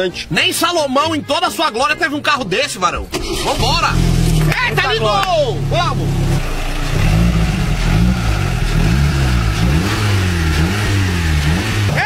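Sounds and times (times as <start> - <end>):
car engine revving: 3.0 - 12.0.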